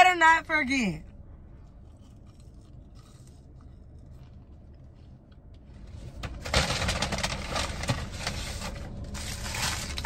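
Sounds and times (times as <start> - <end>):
low hum inside car: 0.0 - 10.0
hands handling food packaging: 2.1 - 10.0.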